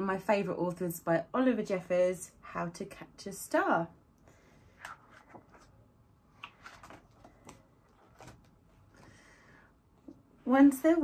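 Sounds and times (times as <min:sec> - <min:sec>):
book pages rustling: 0:04.7 - 0:09.2.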